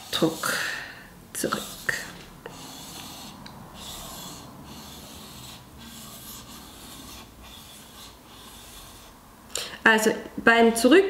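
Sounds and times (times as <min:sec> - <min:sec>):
knife scraping on whetstone: 0:01.4 - 0:09.2.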